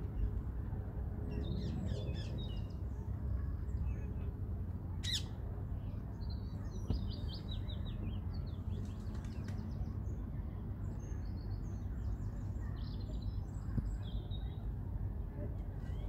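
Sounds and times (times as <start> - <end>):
small birds chirping: 5.0 - 14.8.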